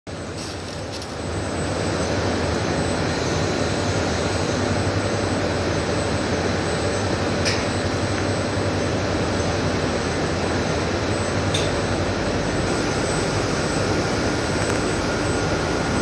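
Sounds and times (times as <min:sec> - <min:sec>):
machinery drone: 0:00.1 - 0:16.0.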